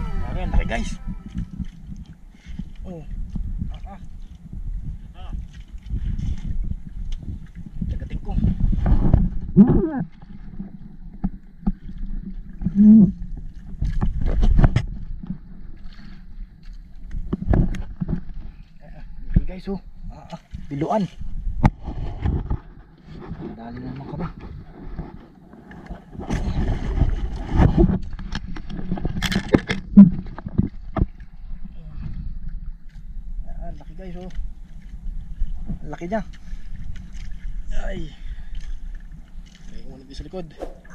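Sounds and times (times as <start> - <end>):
low rumble of wind and water: 0.0 - 40.9
knocks and clatter on boat: 0.7 - 15.9, 16.6 - 18.6, 19.2 - 31.4.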